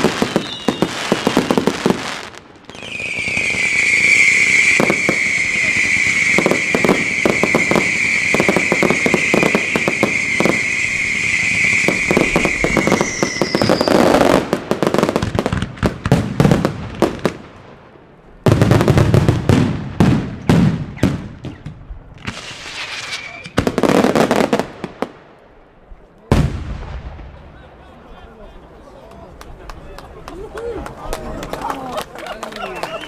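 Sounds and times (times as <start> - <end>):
firework whistle: 0.0 - 1.9, 2.7 - 14.4, 22.2 - 23.6
fireworks bangs and crackles: 0.0 - 30.2.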